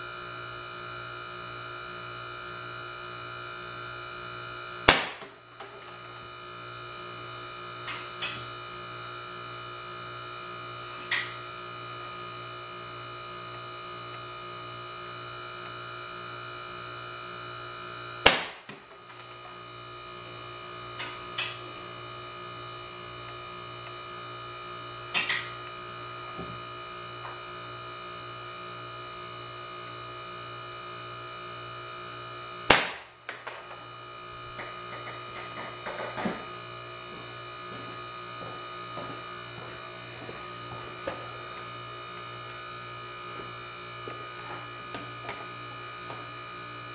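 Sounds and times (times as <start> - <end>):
steady electrical hum: 0.0 - 46.9
air gun shots: 4.9 - 5.3, 18.2 - 18.8, 32.7 - 33.2.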